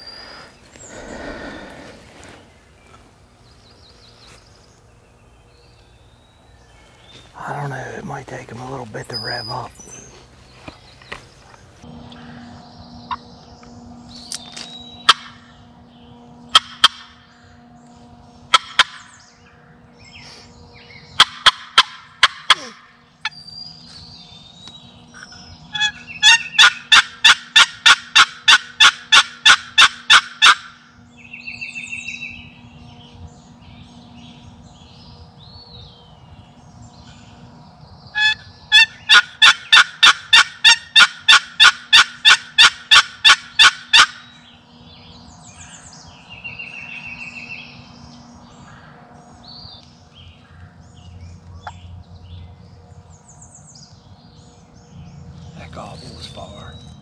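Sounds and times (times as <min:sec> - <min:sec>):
turkey box call notes: 0:25.7 - 0:30.7, 0:38.2 - 0:44.2.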